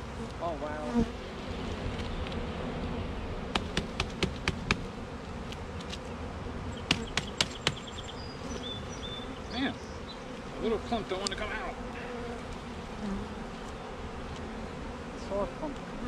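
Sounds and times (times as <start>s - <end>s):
honeybees buzzing: 0.0s - 16.0s
sharp raps on plastic box: 3.6s - 4.9s, 6.9s - 7.9s.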